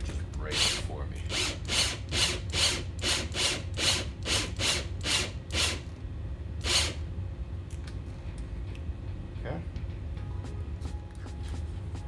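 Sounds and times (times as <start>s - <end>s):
cordless drill bursts: 0.5s - 5.8s, 6.6s - 7.0s.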